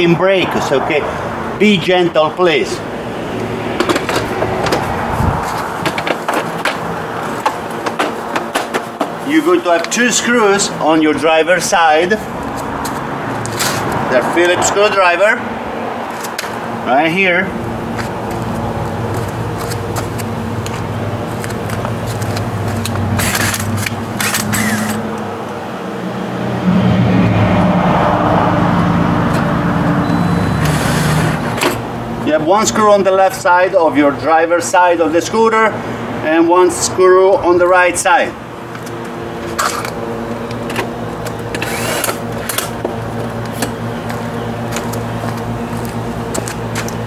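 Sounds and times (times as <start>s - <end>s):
steady low hum: 0.0s - 47.0s
plastic panel scraping: 3.8s - 9.3s
cordless screwdriver whirring: 23.2s - 25.2s, 41.5s - 42.7s.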